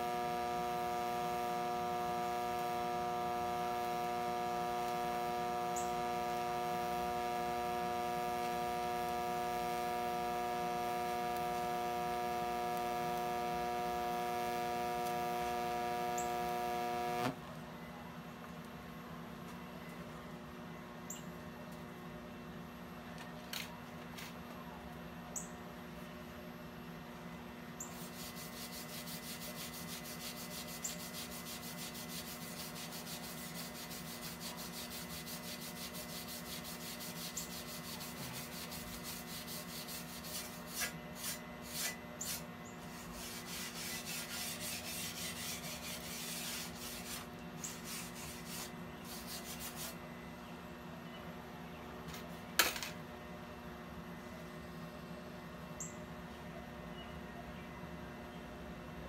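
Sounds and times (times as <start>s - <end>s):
steady low hum: 0.0s - 59.0s
wire brush scrubbing metal: 27.9s - 50.0s.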